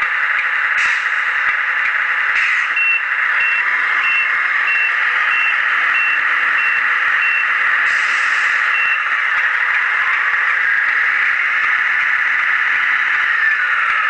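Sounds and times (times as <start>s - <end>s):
short high reversing beeps: 2.7s - 7.5s, 8.6s - 9.1s.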